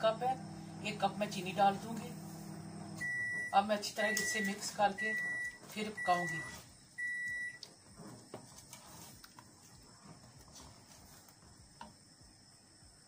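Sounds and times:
wooden spoon scraping pot: 7.9s - 11.2s.

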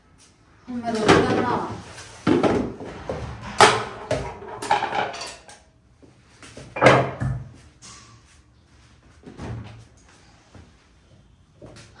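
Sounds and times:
metal utensils and pots clanking: 2.3s - 5.7s.

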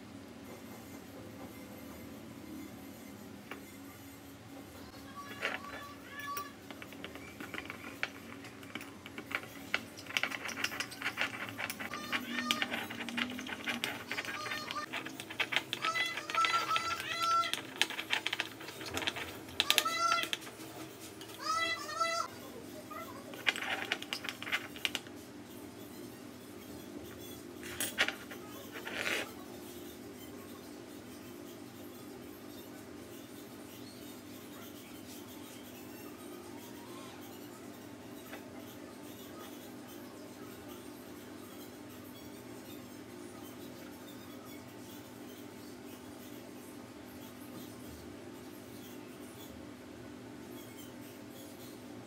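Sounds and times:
spoon scraping ceramic bowl: 5.3s - 20.4s.

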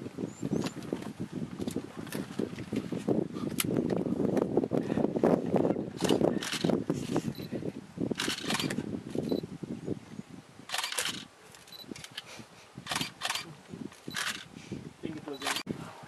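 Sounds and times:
camera shutter clicking: 8.2s - 8.8s, 10.7s - 12.2s, 12.9s - 13.5s, 14.1s - 14.5s.

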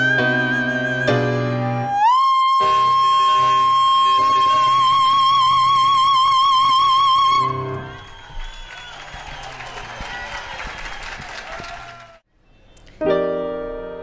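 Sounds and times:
woman singing a long high note: 0.0s - 7.6s
audience applauding: 7.5s - 12.2s
sustained piano chords: 13.0s - 14.0s.

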